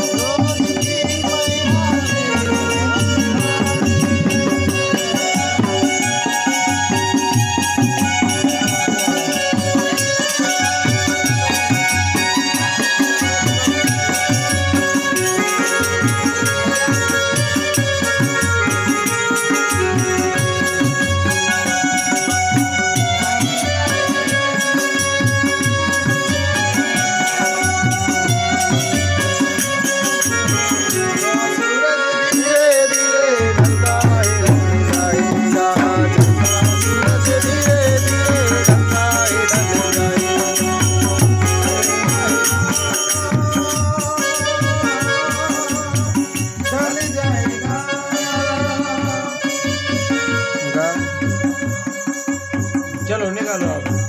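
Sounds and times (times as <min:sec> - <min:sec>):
hand drum beat: 0:00.0 - 0:31.5, 0:33.5 - 0:49.2
harmonium: 0:00.0 - 0:54.0.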